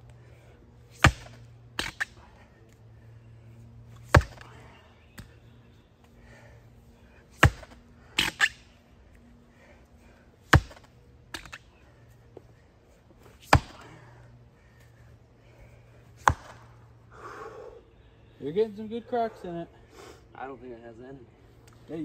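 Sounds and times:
splitting tool striking log: 0:01.0 - 0:02.1, 0:04.1 - 0:04.4.

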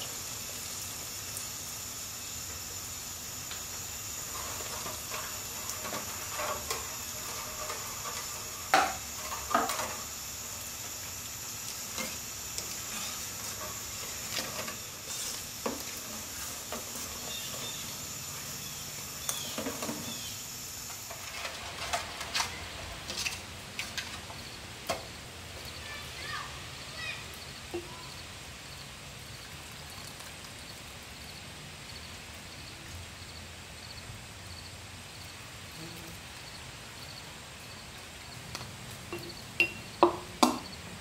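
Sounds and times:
sauce sizzling hiss: 0:00.0 - 0:30.0
ladle scraping a metal pot: 0:04.2 - 0:10.1, 0:11.9 - 0:18.0.

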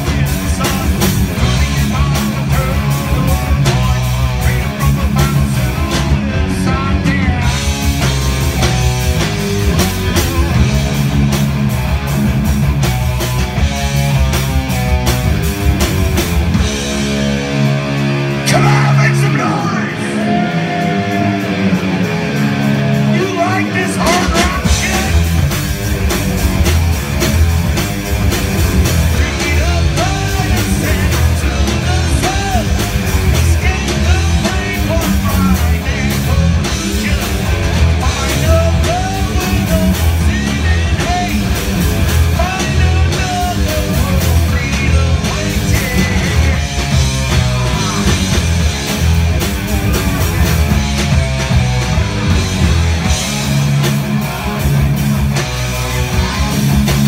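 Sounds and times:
person singing: 0:00.0 - 0:07.7, 0:18.4 - 0:21.4, 0:23.1 - 0:25.4
bass guitar: 0:00.0 - 0:57.0
drum kit: 0:00.0 - 0:57.0
electric guitars: 0:00.0 - 0:57.0.

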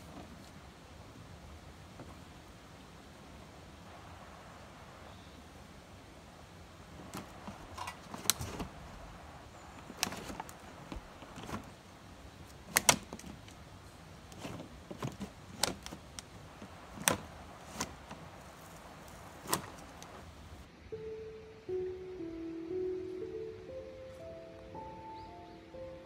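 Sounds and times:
faint steady hiss: 0:00.0 - 0:26.0.

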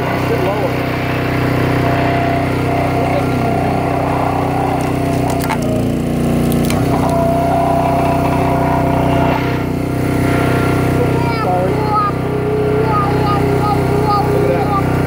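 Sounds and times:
crushing machine engine running: 0:00.0 - 0:15.0
plastic cracking and snapping: 0:04.8 - 0:07.2
plastic toy cars crushed: 0:04.8 - 0:07.5.

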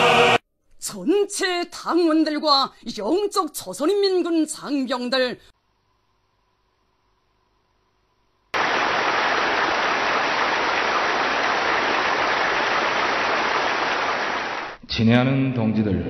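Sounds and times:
static hiss: 0:08.6 - 0:14.8.

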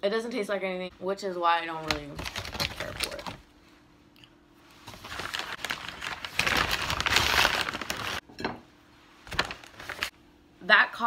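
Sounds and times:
bag crinkling and rustling: 0:04.8 - 0:08.2, 0:09.2 - 0:10.1.

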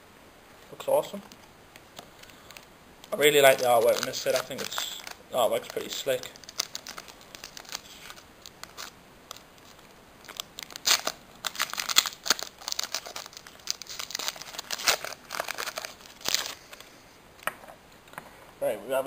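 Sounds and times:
foil wrapper crinkling: 0:01.3 - 0:17.0
foil wrapper tearing: 0:02.2 - 0:16.9.

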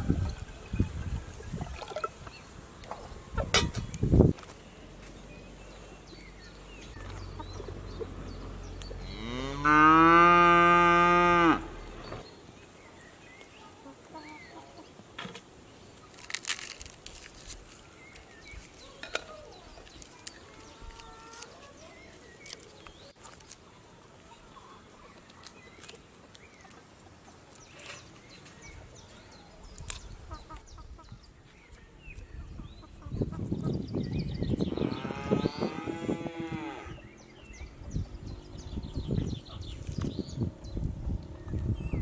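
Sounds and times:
cow mooing: 0:09.0 - 0:11.9.

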